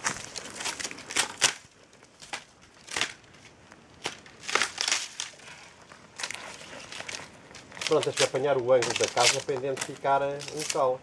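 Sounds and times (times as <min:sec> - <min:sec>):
crunching and scraping on tree trunk: 0:00.0 - 0:11.0
dry bark crackling: 0:00.0 - 0:11.0.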